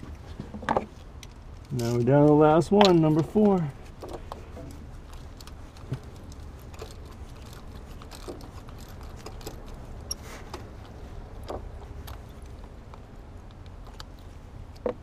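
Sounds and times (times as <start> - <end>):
ratchet clicks and rattles: 4.0 - 15.0.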